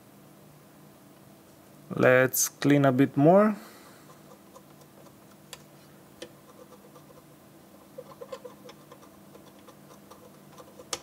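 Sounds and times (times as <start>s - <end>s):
low steady hum: 0.0s - 11.0s
swab ticking and scratching: 4.0s - 11.0s.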